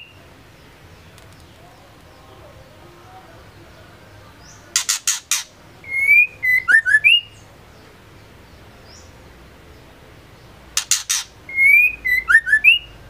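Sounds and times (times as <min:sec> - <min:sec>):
bird whistling: 0:04.4 - 0:07.4, 0:10.8 - 0:13.0
bird harsh scratchy calls: 0:04.7 - 0:07.4, 0:10.7 - 0:12.8.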